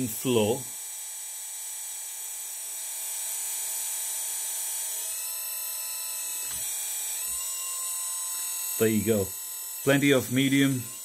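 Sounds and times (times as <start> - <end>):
hydraulic pump whining: 6.2 - 11.0.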